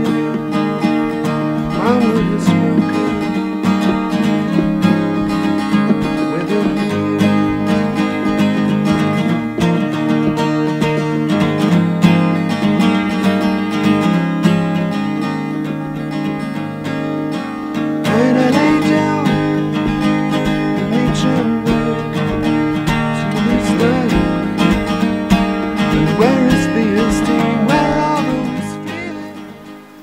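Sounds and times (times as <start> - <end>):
acoustic guitar: 0.0 - 30.0
person singing: 1.6 - 10.2, 18.1 - 24.9, 26.0 - 29.6.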